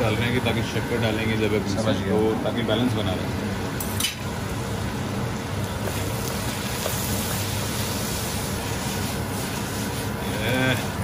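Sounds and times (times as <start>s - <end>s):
vegetables sizzling in a pan: 4.1s - 11.0s.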